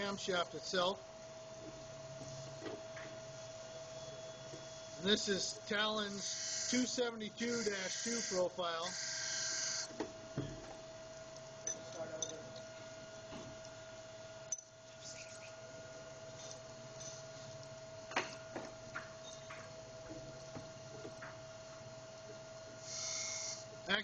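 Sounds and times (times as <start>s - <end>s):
grinding machine humming: 3.7s - 9.9s.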